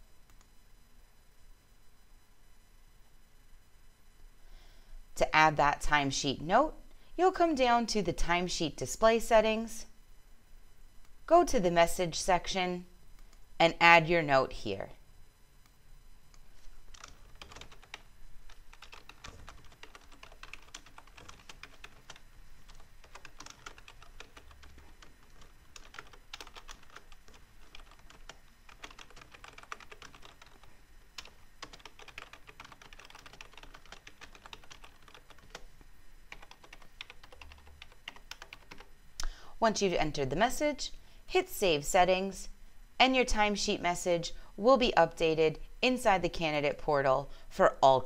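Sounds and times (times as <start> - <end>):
computer keyboard typing: 16.9 - 35.7, 36.3 - 38.9.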